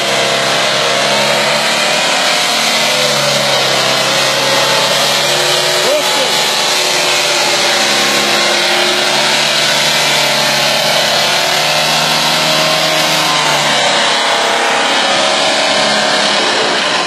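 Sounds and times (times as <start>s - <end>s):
road roller diesel engine running: 0.0s - 17.0s.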